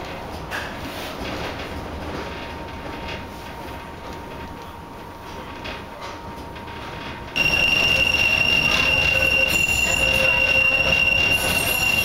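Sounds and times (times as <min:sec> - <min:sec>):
tram rumbling on track: 0:00.0 - 0:12.0
high-pitched wheel squeal: 0:07.4 - 0:12.0.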